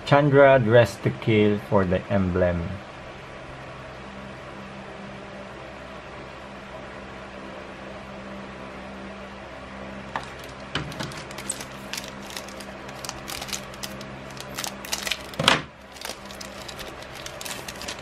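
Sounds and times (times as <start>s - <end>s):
low steady hum: 0.0s - 18.0s
foil wrapper crinkling and tearing: 10.2s - 18.0s.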